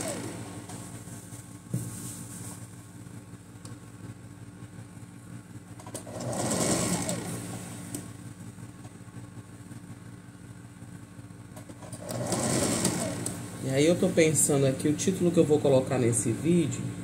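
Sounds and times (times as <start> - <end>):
sewing machine motor humming: 0.0 - 1.2, 5.8 - 8.1, 11.8 - 14.0.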